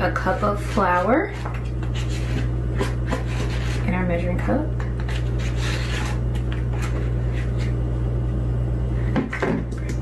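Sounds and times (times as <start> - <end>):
measuring cup scraping flour: 0.0 - 4.0, 5.0 - 7.8
low hum: 0.0 - 10.0.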